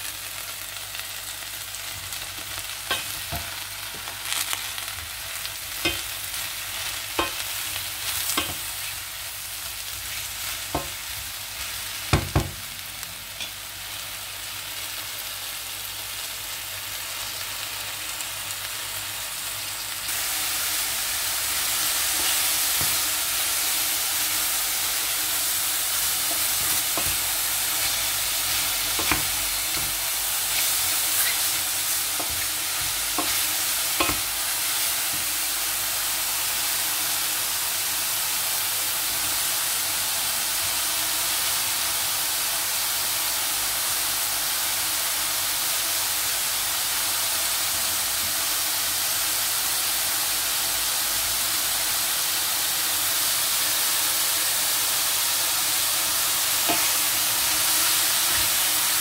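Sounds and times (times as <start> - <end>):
mushrooms sizzling in a pan: 0.0 - 59.0.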